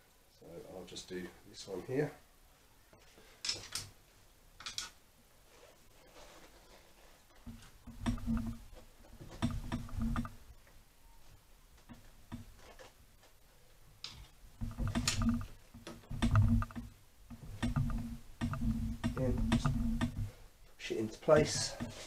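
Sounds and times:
rubber boot clicking and rubbing: 14.2 - 20.3.

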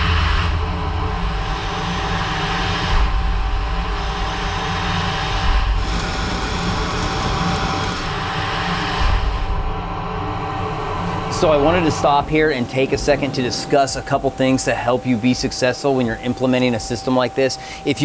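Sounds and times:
thin steady whine: 1.1 - 18.0
lathe spindle rumble: 5.1 - 8.4, 10.2 - 18.0
coolant spray hissing: 5.8 - 8.2.

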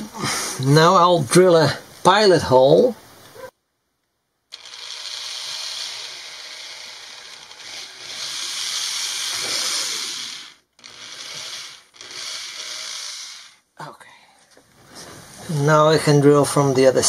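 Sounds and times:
cordless drill whirring: 4.5 - 13.6.

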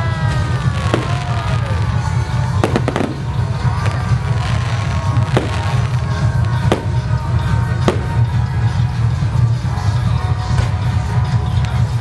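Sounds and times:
firework shells bursting: 2.6 - 3.8, 4.9 - 8.5.

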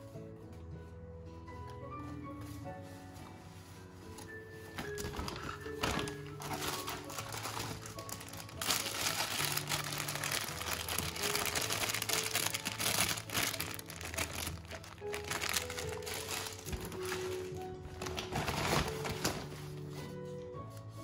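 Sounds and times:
background music: 0.0 - 21.0
packaging crinkling and rustling: 3.8 - 20.3.

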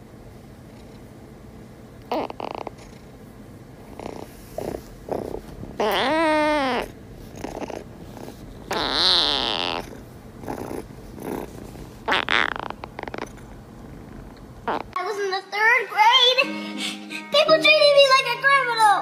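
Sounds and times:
kitten purring: 0.6 - 1.2, 2.0 - 15.0
kitten mewing: 2.0 - 3.1, 3.9 - 13.5, 14.6 - 15.0.

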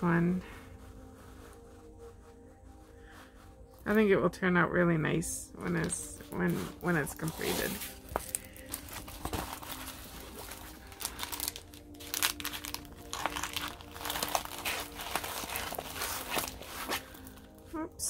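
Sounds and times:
plastic packaging crinkling: 5.8 - 17.7.

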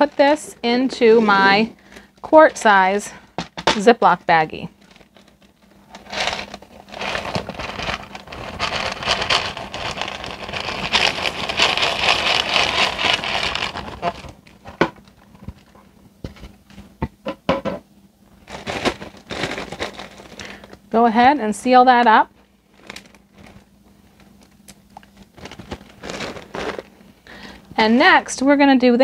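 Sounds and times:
dry pasta pouring into plastic bag: 4.9 - 14.4, 18.4 - 20.8, 22.7 - 23.7, 25.2 - 27.5
bag and dish clicking: 24.9 - 26.9.

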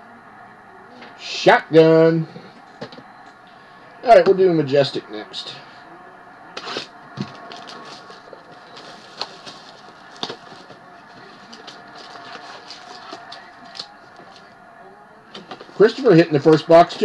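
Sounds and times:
plastic wrap crinkling: 7.4 - 14.5.

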